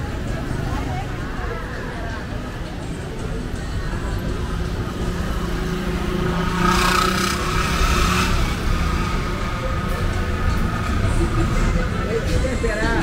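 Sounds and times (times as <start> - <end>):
low traffic rumble: 0.0 - 13.0
motor vehicle running: 0.0 - 13.0
vehicle passing with hiss: 5.3 - 9.6.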